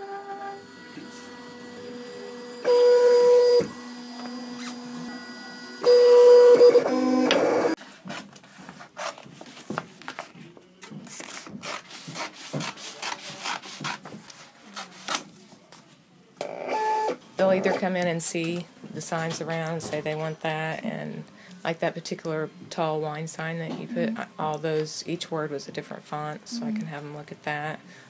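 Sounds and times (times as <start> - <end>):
sign cutter motor whines: 0.0 - 7.8.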